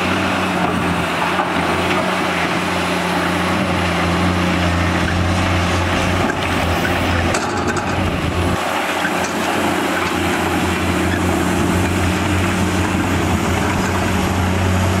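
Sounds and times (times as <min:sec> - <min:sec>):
excavator diesel engines droning: 0:00.0 - 0:15.0.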